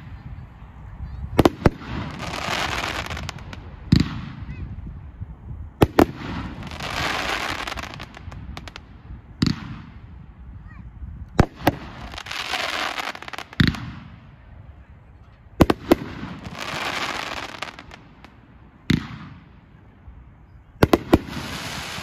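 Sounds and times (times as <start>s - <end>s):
fireworks bangs: 1.1s - 4.7s, 5.8s - 10.3s, 11.4s - 14.6s, 15.5s - 19.8s, 20.8s - 22.0s
fireworks stars sizzling: 15.6s - 18.4s, 20.8s - 22.0s.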